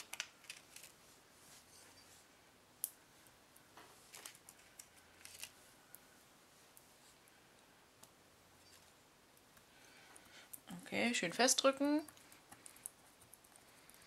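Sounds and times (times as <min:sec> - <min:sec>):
paper rustling: 0:04.0 - 0:05.6.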